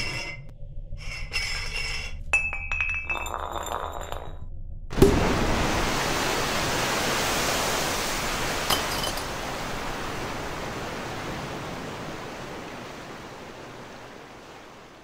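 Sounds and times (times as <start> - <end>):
water gushing in a jet: 5.0 - 13.6.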